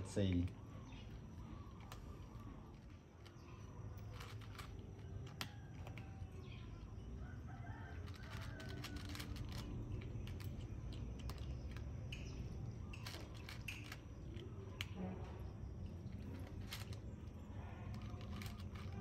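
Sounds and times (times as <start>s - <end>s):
cat crunching dry kibble: 0.3s - 15.0s, 15.7s - 19.0s.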